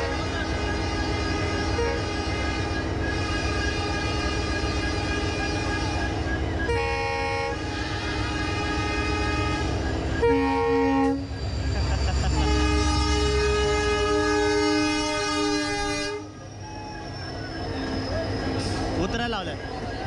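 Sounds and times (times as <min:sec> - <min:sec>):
train horn blasts: 0:00.0 - 0:06.0, 0:06.7 - 0:11.4, 0:12.3 - 0:16.4
train locomotive rumbling: 0:00.0 - 0:20.0.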